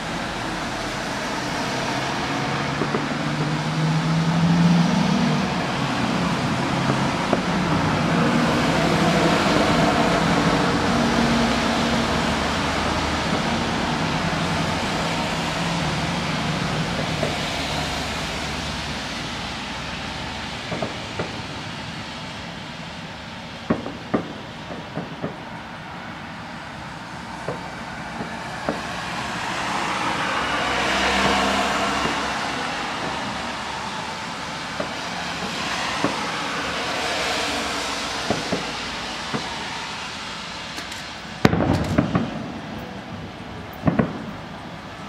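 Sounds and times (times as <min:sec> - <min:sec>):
fireworks rumbling and crackling: 0:00.0 - 0:45.0
sharp firework pops: 0:02.8 - 0:03.5, 0:20.7 - 0:21.5, 0:23.6 - 0:25.5, 0:27.4 - 0:28.9, 0:32.0 - 0:32.3, 0:38.2 - 0:39.7, 0:40.7 - 0:42.9, 0:43.7 - 0:44.4.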